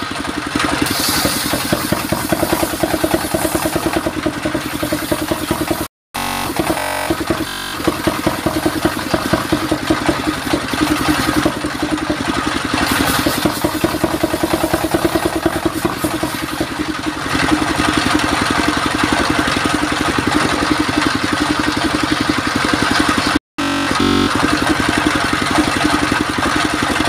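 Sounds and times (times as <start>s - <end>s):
engine pulsing: 0.0s - 27.0s
circular saw blade cutting log: 0.8s - 16.8s.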